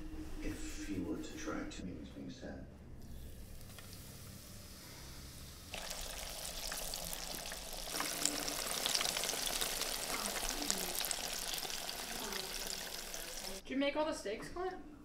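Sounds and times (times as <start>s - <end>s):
mushrooms sizzling in frying pan: 3.5s - 13.6s.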